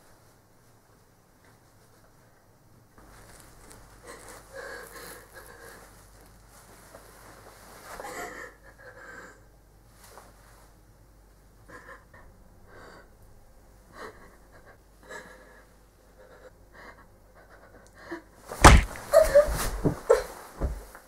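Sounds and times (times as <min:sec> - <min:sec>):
woman sobbing breaths: 0:04.0 - 0:06.0, 0:08.0 - 0:09.5, 0:13.9 - 0:18.3
loud thud: 0:18.6 - 0:19.2.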